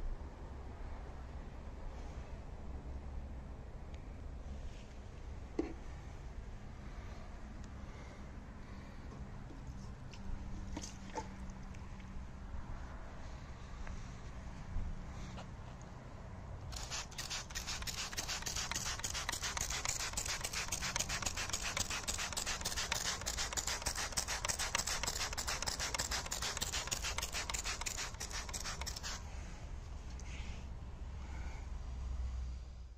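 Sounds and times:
water spray hissing on panel: 0:16.7 - 0:29.2.

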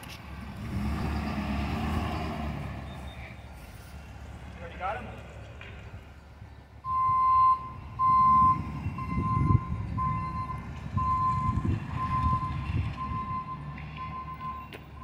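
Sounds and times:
truck engine rumble: 0:00.0 - 0:15.0
truck back-up alarm beeping: 0:02.0 - 0:03.5, 0:06.8 - 0:15.0.

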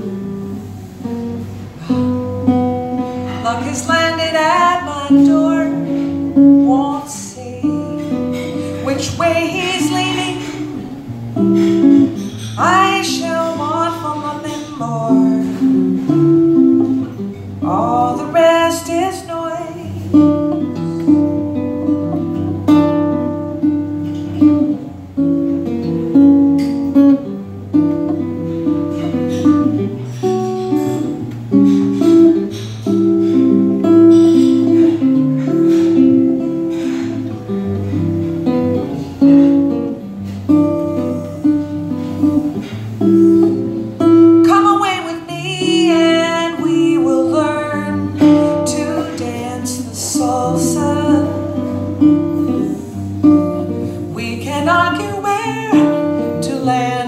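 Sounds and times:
acoustic guitar plucked notes: 0:00.0 - 0:57.0
woman singing: 0:03.3 - 0:10.9, 0:11.8 - 0:15.8, 0:17.0 - 0:20.3, 0:44.2 - 0:52.7, 0:54.0 - 0:57.0.

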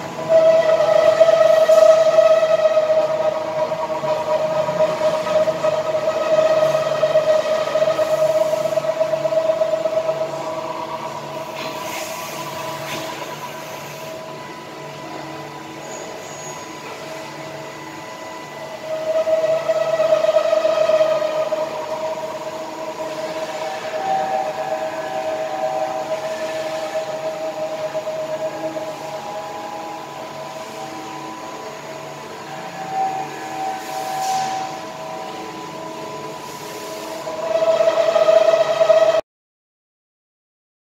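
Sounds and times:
machine high whine: 0:00.0 - 0:39.2
coolant hiss: 0:11.5 - 0:14.2.

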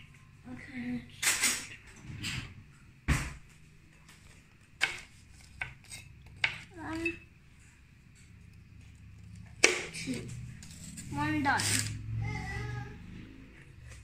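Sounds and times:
knife scraping: 0:04.8 - 0:07.2, 0:10.5 - 0:12.0.

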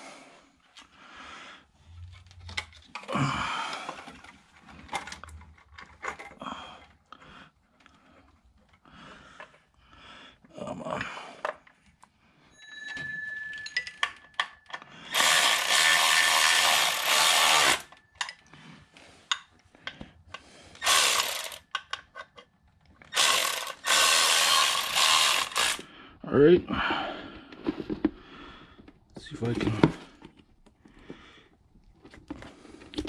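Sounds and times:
tools clicking and clattering: 0:03.7 - 0:07.0, 0:12.9 - 0:18.6, 0:19.2 - 0:25.8
cordless ratchet spinning: 0:15.1 - 0:18.0, 0:20.8 - 0:21.8, 0:23.1 - 0:25.8.

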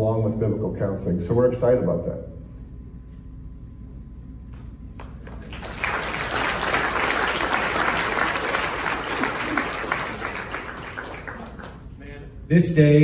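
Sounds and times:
congregation applauding: 0:05.0 - 0:12.1.

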